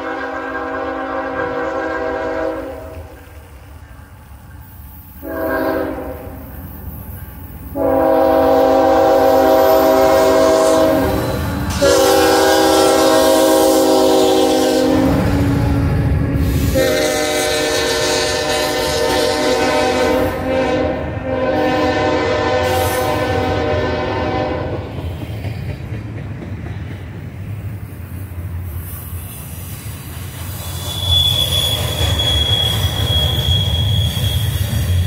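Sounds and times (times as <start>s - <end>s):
locomotive air horn blasts: 0.0s - 3.0s, 5.2s - 6.4s, 7.7s - 15.8s, 16.6s - 24.8s
locomotive engine and wheels rumbling: 0.0s - 35.0s.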